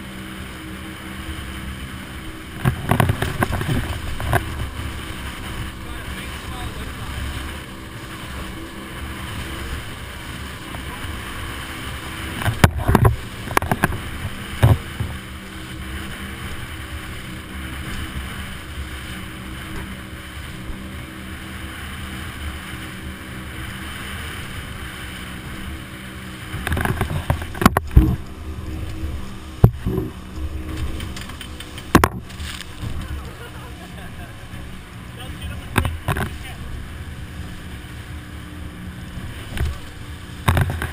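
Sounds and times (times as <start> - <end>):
outboard motors droning: 0.0 - 40.9
rushing water: 0.0 - 40.9
wind: 0.0 - 40.9
sharp knocks: 31.8 - 32.3.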